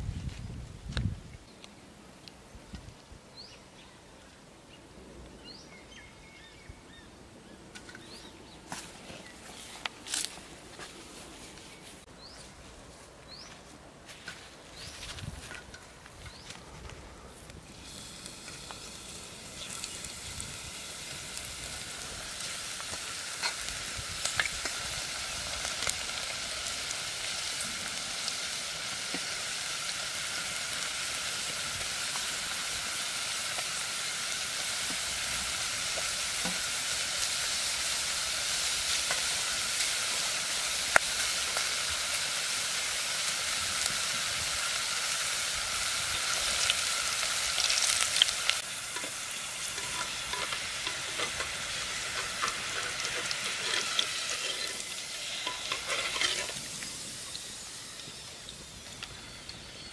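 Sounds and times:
oil crackles and pops: 0:14.8 - 0:59.6
potato slices sizzling in oil: 0:17.6 - 0:59.9
wire skimmer stirring: 0:48.9 - 0:56.6.

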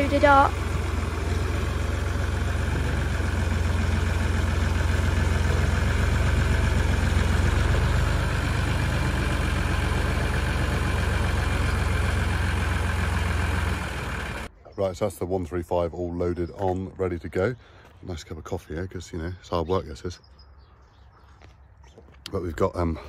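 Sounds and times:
tractor engine running at low revs: 0:00.0 - 0:14.5.

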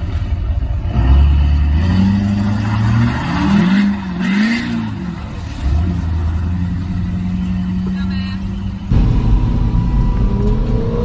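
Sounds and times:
truck engine revving hard: 0:00.8 - 0:11.0
water splashing around wheels: 0:01.6 - 0:08.9.

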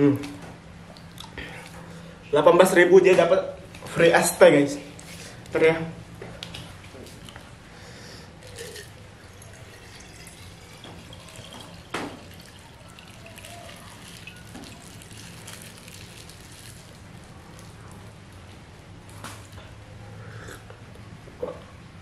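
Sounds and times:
liquid pouring into glass jar: 0:08.4 - 0:17.7.

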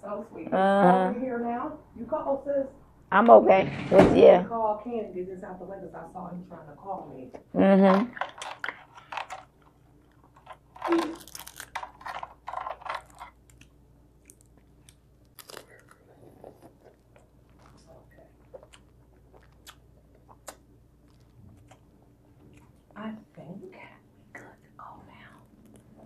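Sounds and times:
crab shells cracking: 0:08.1 - 0:16.0
crunching and chewing: 0:08.1 - 0:23.0, 0:24.8 - 0:26.0.

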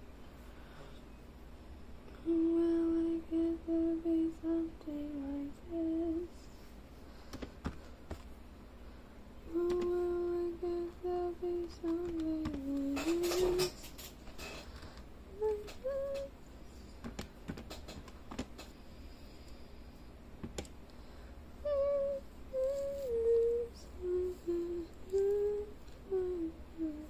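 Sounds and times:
person humming: 0:02.1 - 0:06.4, 0:09.4 - 0:13.9, 0:15.3 - 0:16.4, 0:21.6 - 0:27.0.

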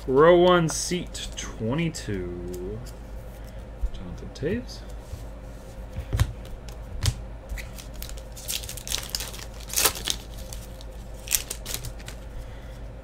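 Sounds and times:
foil wrapper tearing and crinkling: 0:07.6 - 0:12.2.

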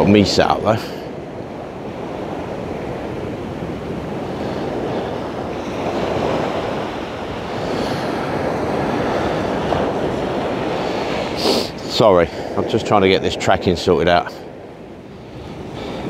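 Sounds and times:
surf washing on a beach: 0:00.0 - 0:16.0
wind rumbling on microphone: 0:00.0 - 0:16.0.

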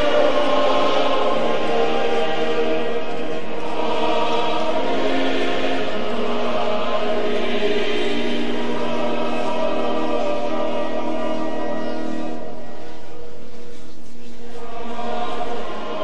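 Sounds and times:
choir singing a hymn: 0:00.0 - 0:13.2, 0:14.4 - 0:16.0.

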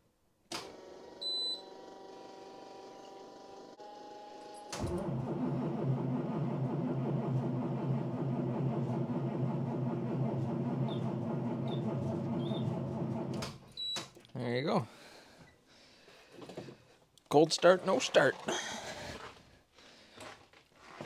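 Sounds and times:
starter cranking diesel engine: 0:04.8 - 0:13.6.

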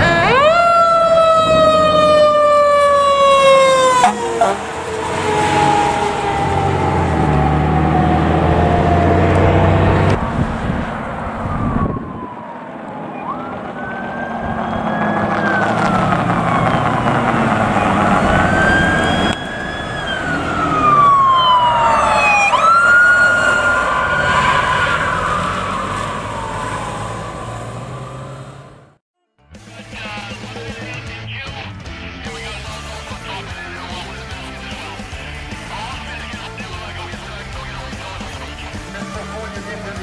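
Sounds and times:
fire engine rumbling: 0:00.0 - 0:29.0, 0:29.6 - 0:40.0
siren tone falling: 0:00.0 - 0:29.0
siren wailing: 0:00.0 - 0:29.0.

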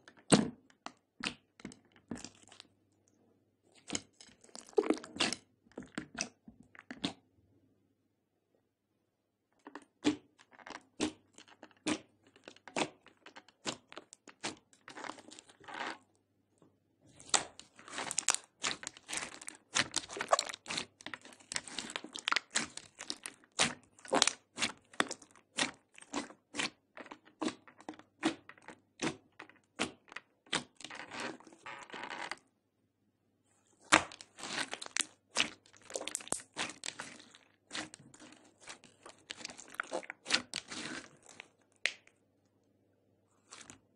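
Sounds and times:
slime squished by hand: 0:17.1 - 0:31.4, 0:33.8 - 0:42.2.

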